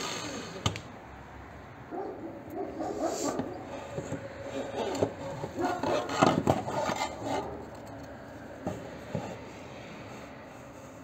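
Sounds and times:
board rubbing and clattering: 0:03.2 - 0:07.9.

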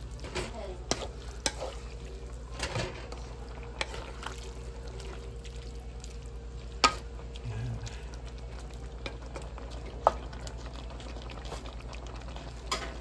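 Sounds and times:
meat sizzling in a pan: 0:00.0 - 0:13.0.

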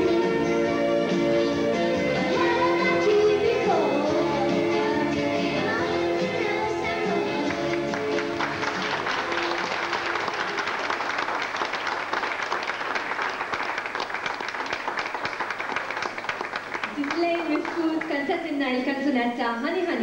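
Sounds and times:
song backing track: 0:00.0 - 0:11.0
audience applauding: 0:07.4 - 0:18.5.

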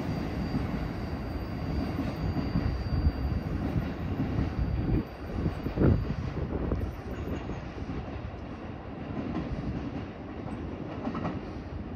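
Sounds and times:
train wheels clacking over rail joints: 0:03.6 - 0:11.9.

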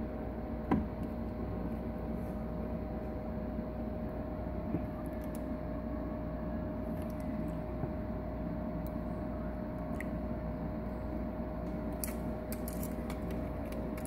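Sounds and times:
water filter hum and trickle: 0:00.0 - 0:14.0.

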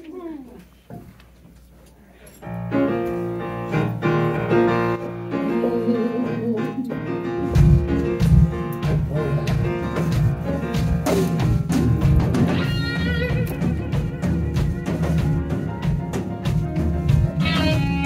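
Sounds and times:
grand piano chords: 0:02.4 - 0:18.0
bass guitar: 0:02.5 - 0:18.0
drum kit heavy beat: 0:07.0 - 0:18.0.

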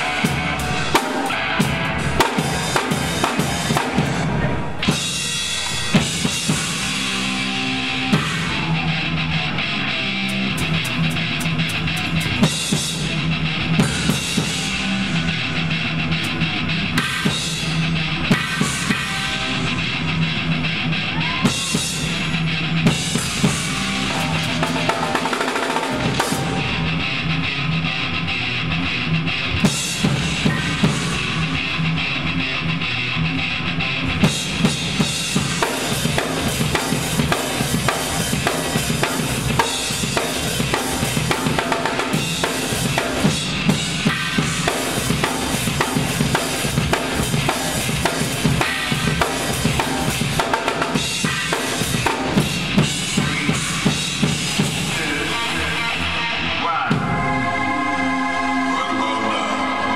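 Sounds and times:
drum kit playing: 0:00.0 - 0:08.9, 0:10.1 - 0:20.6, 0:21.2 - 0:27.3, 0:29.6 - 0:31.8, 0:34.1 - 0:55.8
steady low drone: 0:00.0 - 0:12.4.

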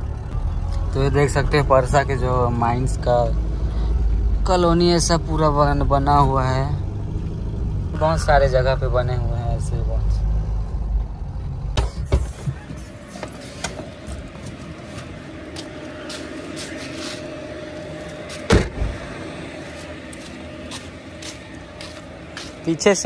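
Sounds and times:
car engine rumbling: 0:00.0 - 0:23.0
car door slamming: 0:18.4 - 0:19.1.

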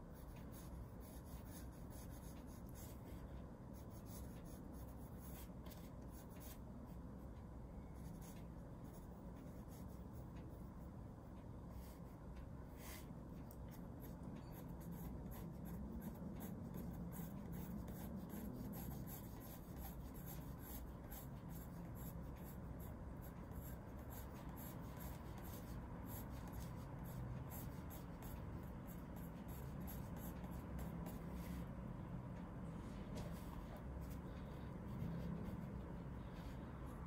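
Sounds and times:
pencil scratching on paper: 0:00.1 - 0:06.6, 0:12.8 - 0:31.6.

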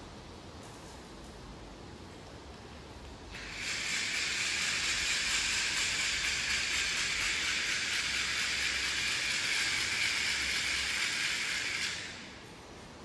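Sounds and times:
hand winder whirring: 0:03.4 - 0:12.2.

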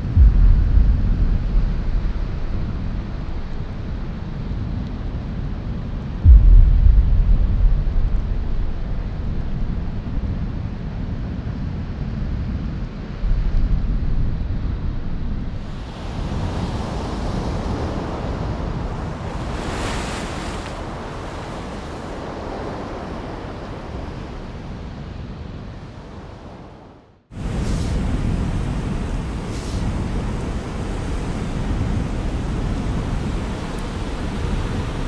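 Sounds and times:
wind on microphone: 0:00.0 - 0:35.0
ocean wave breaking: 0:15.5 - 0:35.0
churning whitewater hiss: 0:27.6 - 0:28.2, 0:29.2 - 0:30.8.

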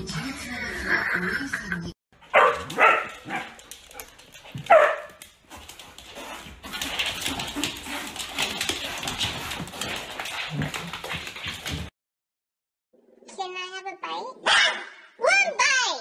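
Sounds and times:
dog and cat scuffling on floor: 0:02.2 - 0:11.9
husky yowling bark: 0:02.3 - 0:03.6.

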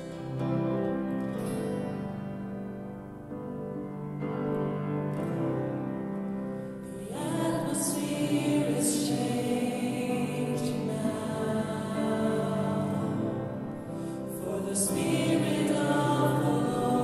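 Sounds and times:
gospel band on piano and guitars: 0:00.0 - 0:17.0
woman singing: 0:06.9 - 0:13.5, 0:14.3 - 0:17.0.

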